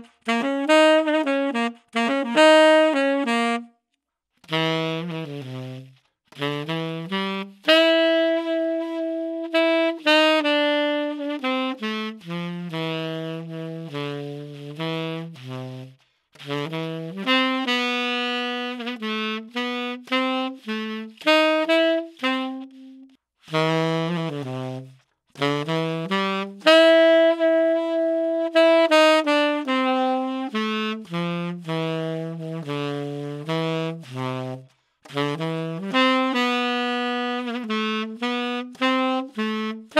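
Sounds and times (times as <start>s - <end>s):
tenor saxophone jazz phrase: 0.0s - 3.7s, 4.4s - 39.9s.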